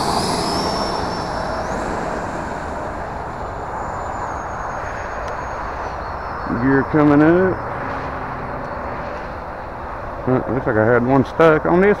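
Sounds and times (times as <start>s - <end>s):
rushing air: 0.0s - 6.0s
electric jet fan whine: 0.0s - 7.5s.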